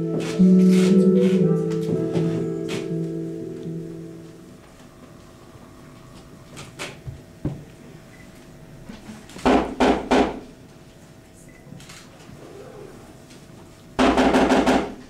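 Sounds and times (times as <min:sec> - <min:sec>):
knocks on wooden door: 0:09.4 - 0:10.4, 0:14.0 - 0:15.0.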